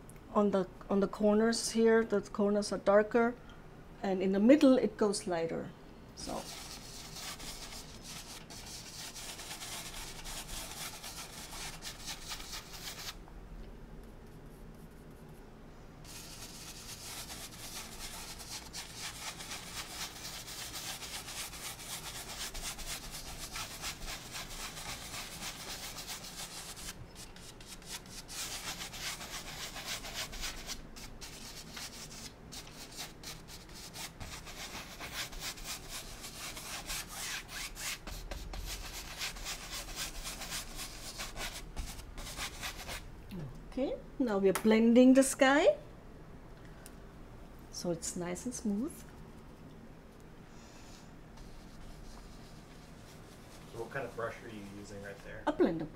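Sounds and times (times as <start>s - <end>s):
brush scrubbing on canvas: 6.2s - 13.2s, 16.0s - 43.0s, 51.4s - 55.4s.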